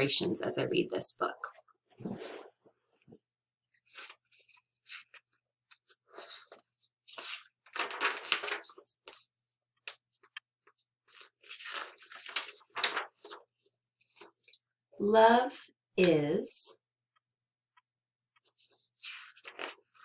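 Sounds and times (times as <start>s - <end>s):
book pages rustling: 2.0s - 14.7s, 18.3s - 20.0s.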